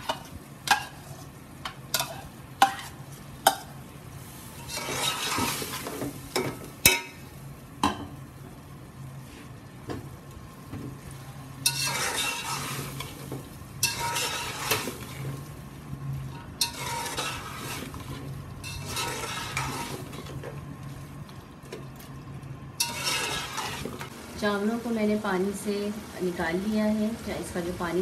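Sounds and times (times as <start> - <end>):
food sizzling: 0.0 - 28.0
metal spatula scraping a pot: 4.6 - 6.0, 11.6 - 13.2, 13.8 - 15.3, 16.3 - 20.4, 22.8 - 24.1.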